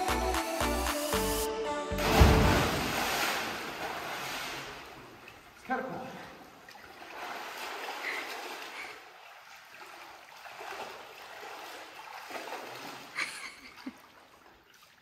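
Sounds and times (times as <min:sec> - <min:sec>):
running splashing water: 0:02.0 - 0:15.0.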